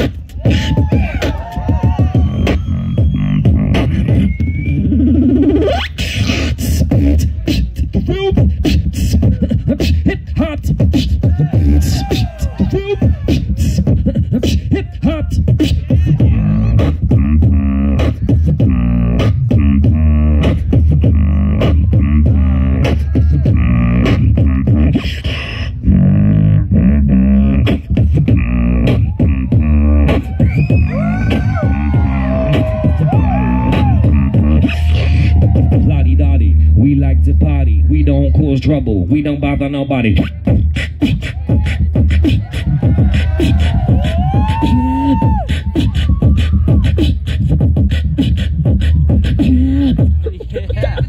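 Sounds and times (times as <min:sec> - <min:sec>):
amplified beatboxing: 0:00.0 - 0:51.0
steady low bass: 0:00.0 - 0:51.0
rising vocal glide: 0:10.8 - 0:38.4, 0:40.2 - 0:50.2
warbling vocal effects: 0:15.4 - 0:50.2.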